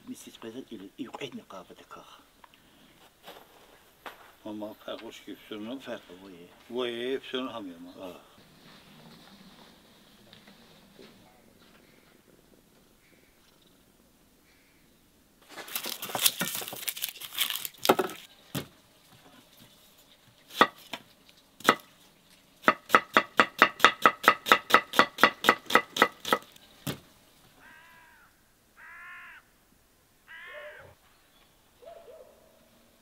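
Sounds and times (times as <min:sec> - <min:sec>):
knife chopping on wooden board: 0:20.5 - 0:20.9, 0:21.6 - 0:21.9, 0:22.6 - 0:27.0
short animal calls: 0:27.6 - 0:29.5, 0:30.2 - 0:31.0.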